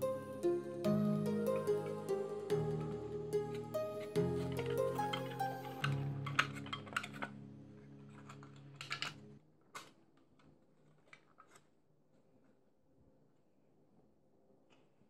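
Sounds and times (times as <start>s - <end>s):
background music: 0.0s - 9.4s.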